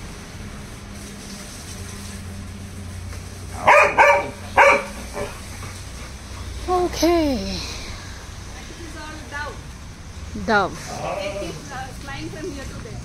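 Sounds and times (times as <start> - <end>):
dog barking: 3.6 - 5.4.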